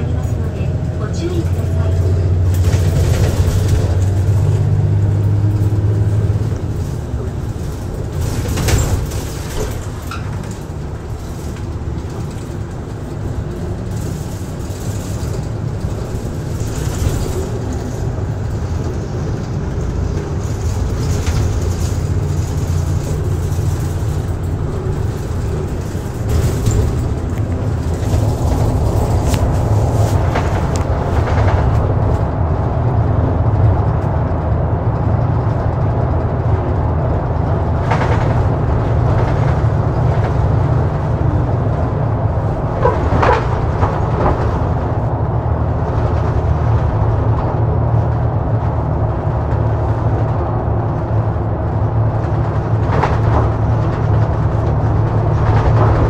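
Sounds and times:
bus engine drone: 0.0 - 56.0
road noise: 0.0 - 56.0.

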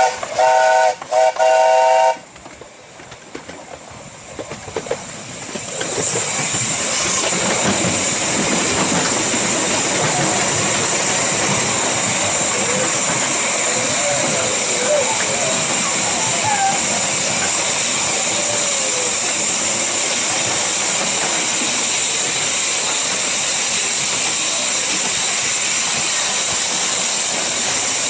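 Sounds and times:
steam locomotive whistle chord: 0.0 - 2.2
steam and wheels rushing in tunnel: 0.0 - 28.0
train running: 0.0 - 28.0.

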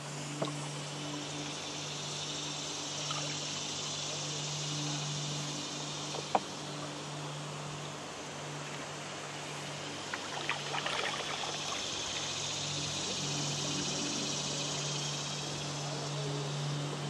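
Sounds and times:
moving water hiss: 0.0 - 17.0
small splashes: 10.0 - 12.4.

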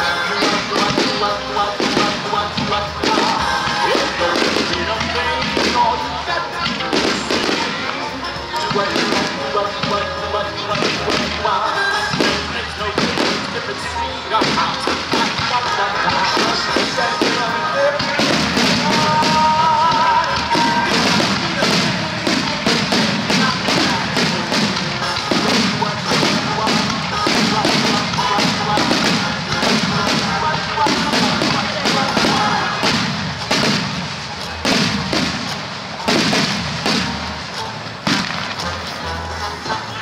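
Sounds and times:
firework shells bursting: 10.7 - 39.0.

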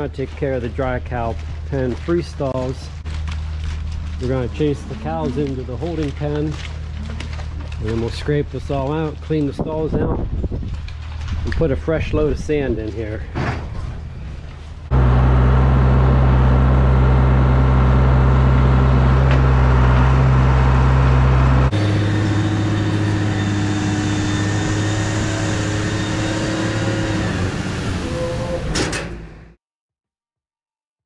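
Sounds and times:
truck engine humming: 14.2 - 29.6.

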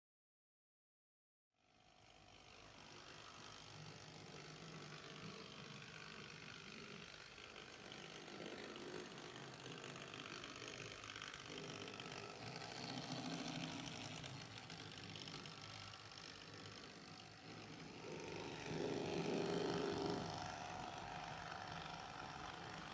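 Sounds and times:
model train motor hum: 1.6 - 22.9
wheels rumbling on rail: 7.0 - 22.9.

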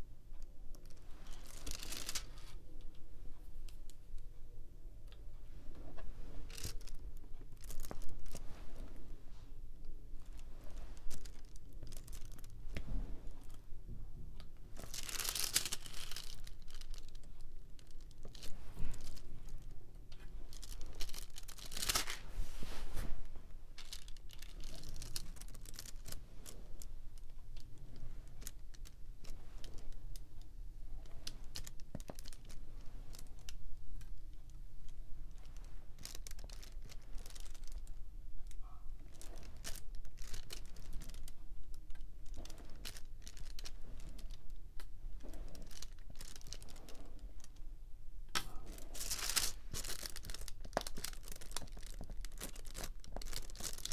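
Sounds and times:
plastic crinkling: 0.8 - 2.6, 6.5 - 8.4, 10.3 - 12.6, 14.8 - 22.3, 23.7 - 30.2, 31.0 - 47.6, 48.3 - 53.9.

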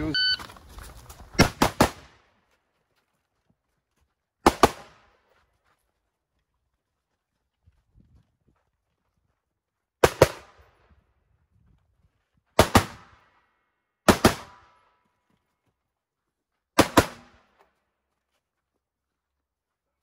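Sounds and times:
rifle shots: 1.4 - 2.2, 12.6 - 13.1, 14.1 - 14.6, 16.8 - 17.4.

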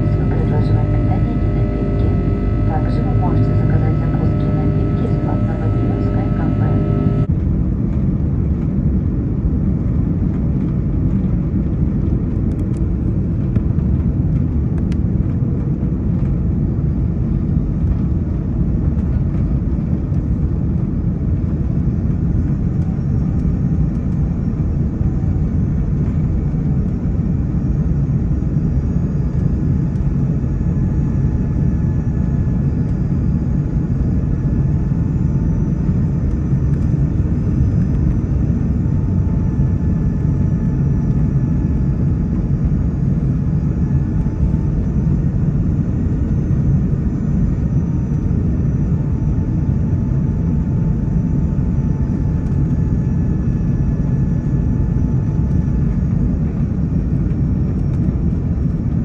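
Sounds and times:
faint high whining tones: 0.0 - 7.3
jet engine cabin rumble: 0.0 - 59.0.

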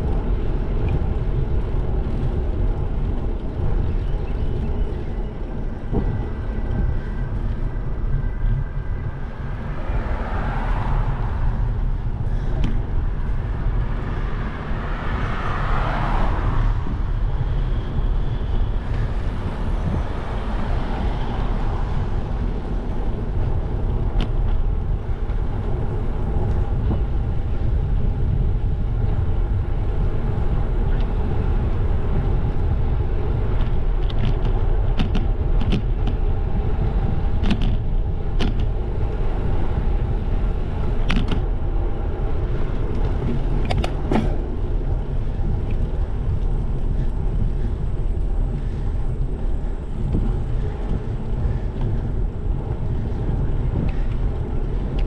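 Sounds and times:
bicycle tyre noise on road: 0.0 - 55.0
wind rumble: 0.0 - 55.0
sharp clicks and rattles: 33.6 - 36.2, 37.3 - 38.7, 41.0 - 41.5, 42.7 - 44.7.

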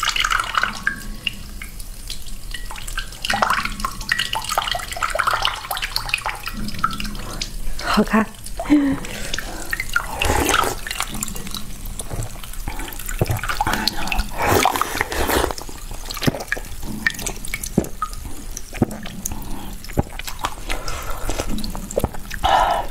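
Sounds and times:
crunching and slurping ice: 9.2 - 11.2, 12.0 - 22.5
ice cracking: 14.3 - 16.7.

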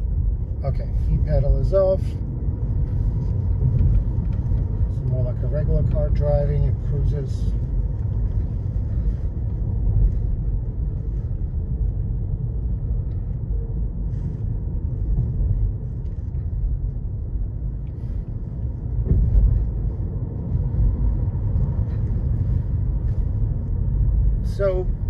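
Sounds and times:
road and tyre rumble: 0.0 - 25.0
thump: 19.0 - 19.7.

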